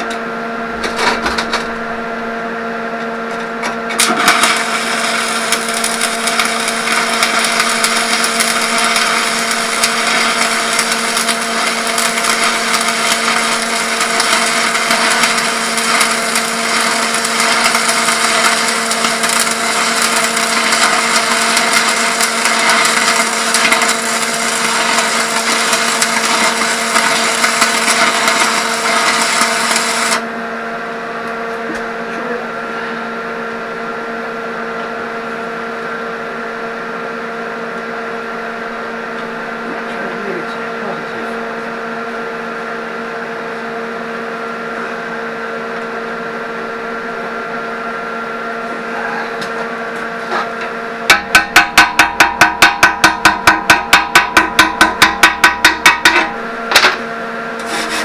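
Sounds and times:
welding arc crackling and sizzling: 0:00.0 - 0:30.3, 0:50.0 - 0:58.0.

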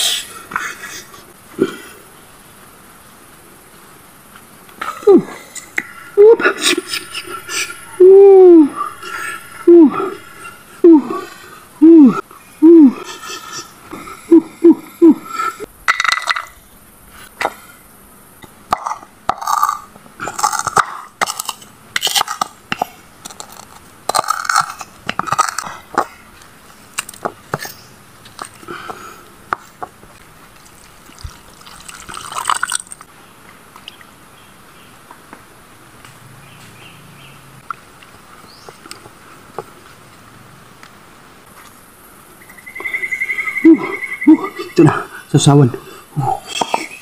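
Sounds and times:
liquid pouring: 0:30.5 - 0:33.1
liquid splashing in plastic bowl: 0:30.6 - 0:33.0.

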